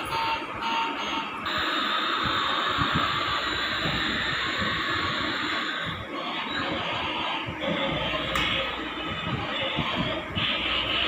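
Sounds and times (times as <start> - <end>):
toy rhythmic sound effect: 0.0 - 11.0
toy electric motor whirring: 1.5 - 5.9.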